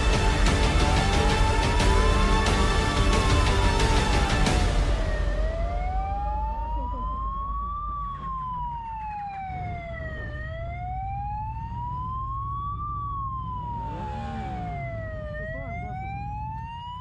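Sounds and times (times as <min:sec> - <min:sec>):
motorcycle siren wailing: 0:00.0 - 0:17.0
steady low rumble: 0:04.5 - 0:09.5.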